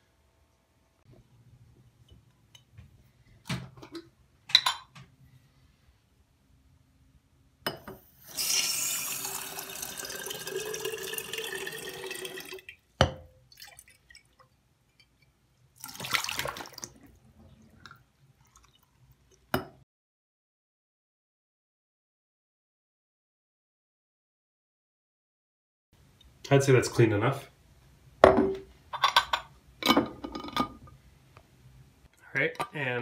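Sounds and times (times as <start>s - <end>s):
faucet running into glass jar: 8.2s - 12.7s.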